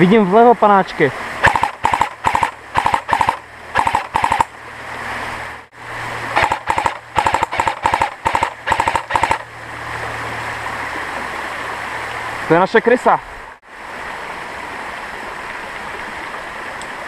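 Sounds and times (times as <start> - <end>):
airsoft gun bursts: 1.4 - 4.5, 6.4 - 9.4.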